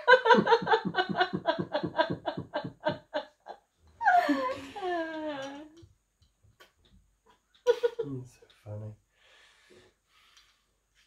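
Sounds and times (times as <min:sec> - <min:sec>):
woman laughing hard: 0:00.0 - 0:05.4.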